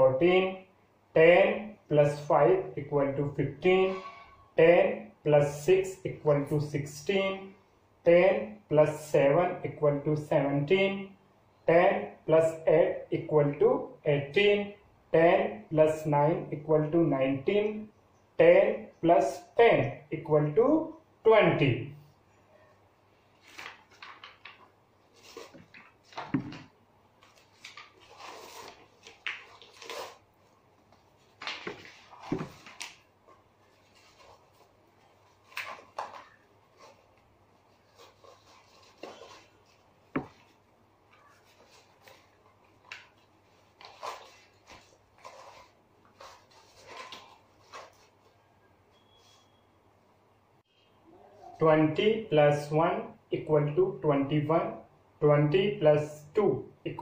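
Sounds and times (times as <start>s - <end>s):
paper cards rustling and scraping: 23.3s - 48.4s.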